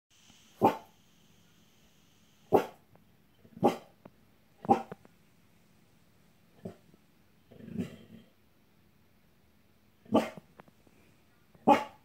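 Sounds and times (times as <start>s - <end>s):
dog barking: 0.6s - 1.0s, 2.5s - 2.8s, 3.6s - 4.0s, 4.6s - 5.0s, 10.1s - 10.4s, 11.6s - 12.0s.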